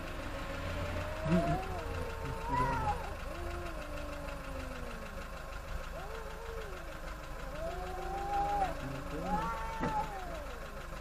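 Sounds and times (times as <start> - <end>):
low steady rumble: 0.0 - 11.0
cat yowling: 0.8 - 10.7.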